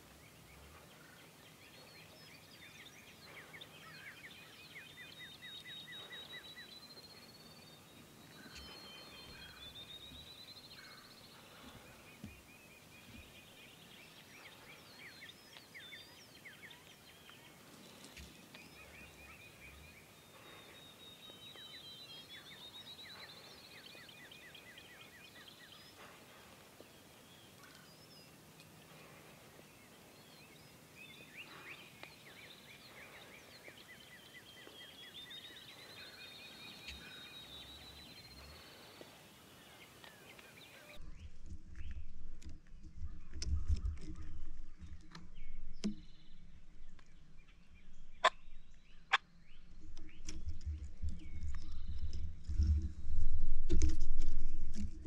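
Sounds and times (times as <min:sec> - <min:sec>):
faint trilling birdsong: 0:00.0 - 0:53.2
wind rumble on microphone: 0:41.0 - 0:47.0, 0:49.6 - 0:55.0.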